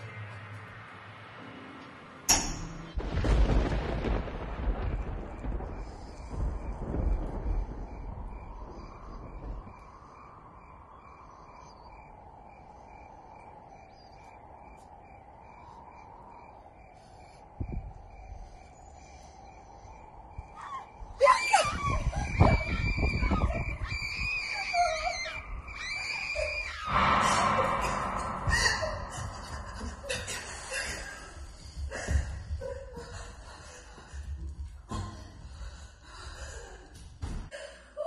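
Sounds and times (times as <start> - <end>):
screaming: 20.6 - 30.2
wavering drone: 24.6 - 31.4
heavy thuds: 26.9 - 32.9.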